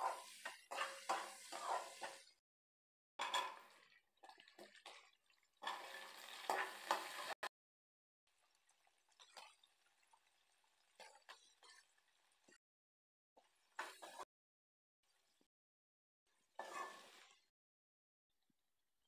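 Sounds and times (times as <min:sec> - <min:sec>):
food sizzling in oil: 0:00.0 - 0:02.4, 0:05.6 - 0:07.5, 0:16.6 - 0:17.5
spoon scraping a frying pan: 0:00.0 - 0:02.4, 0:05.6 - 0:07.4, 0:13.8 - 0:14.2, 0:16.6 - 0:17.4.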